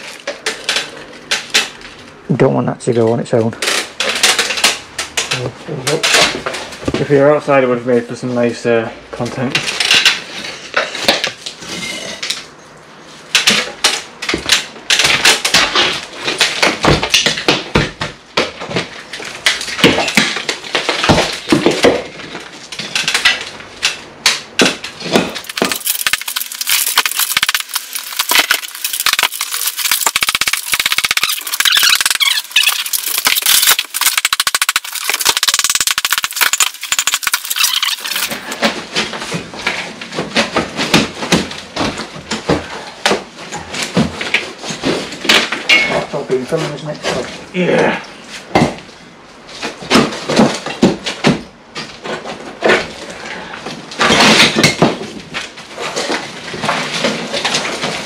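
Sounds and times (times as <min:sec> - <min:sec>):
knocks and cracks on plaster: 0:13.3 - 0:46.1, 0:48.4 - 0:49.0, 0:49.6 - 0:58.0
debris clattering: 0:19.2 - 0:42.6.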